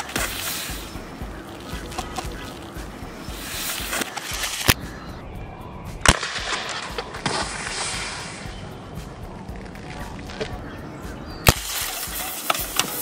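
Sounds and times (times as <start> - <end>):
pellet revolver shots: 6.0 - 7.8, 11.4 - 13.0.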